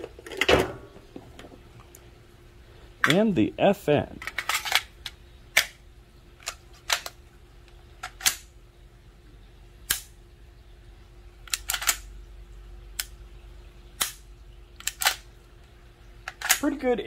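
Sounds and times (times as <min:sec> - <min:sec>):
pistol trigger dry-firing: 0:14.0 - 0:14.2.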